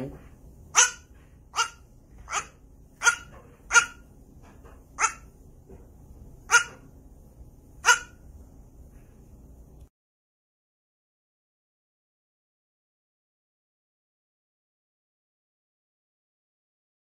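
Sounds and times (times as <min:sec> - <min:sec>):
goat barking: 0:00.7 - 0:04.1, 0:05.0 - 0:05.3, 0:06.5 - 0:06.9, 0:07.8 - 0:08.2.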